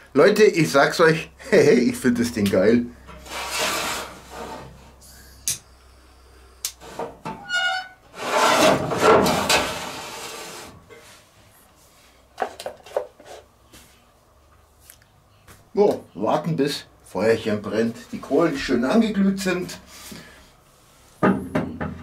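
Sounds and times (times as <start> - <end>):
metal scraping and rubbing: 3.1 - 5.0, 6.8 - 11.2
short squeak: 7.4 - 8.0.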